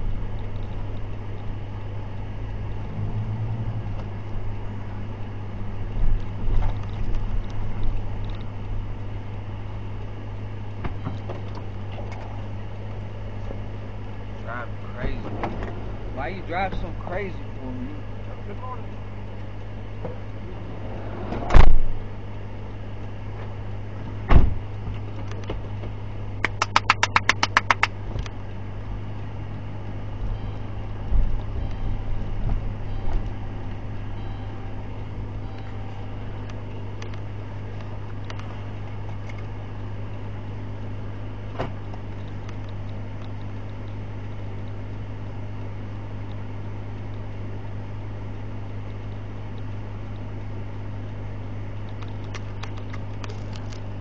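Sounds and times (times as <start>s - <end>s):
van pulling away: 0.0s - 18.7s
engine humming: 0.0s - 54.0s
car door slamming: 24.3s - 24.6s
sharp clicks: 26.4s - 28.3s.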